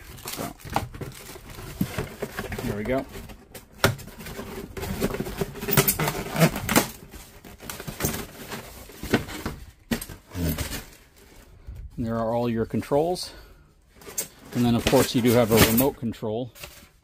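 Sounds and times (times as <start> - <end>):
packaging clicks and rustles: 0.0 - 11.5.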